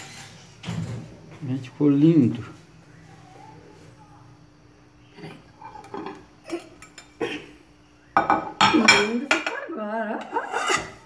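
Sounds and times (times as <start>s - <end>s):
glass dishes clinking: 5.2s - 7.2s, 8.2s - 9.6s
glass scraping on glass: 10.2s - 11.0s.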